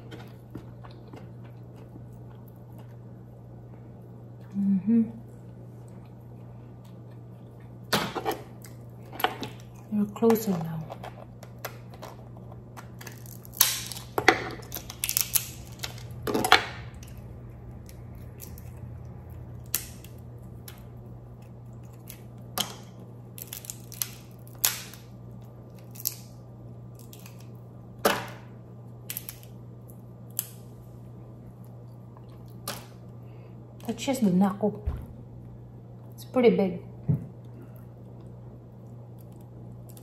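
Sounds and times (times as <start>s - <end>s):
steady low hum: 0.0s - 40.0s
crab shell cracking: 11.0s - 18.8s, 19.6s - 27.6s, 28.9s - 30.8s
shell pieces snapping: 12.8s - 16.1s, 19.6s - 20.8s, 22.0s - 25.1s, 25.8s - 26.3s, 29.1s - 29.5s.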